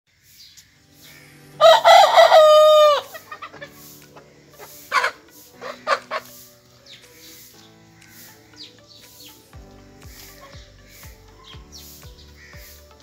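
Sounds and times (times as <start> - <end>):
rooster crowing: 1.6 - 3.6
rooster clucking: 1.6 - 6.4.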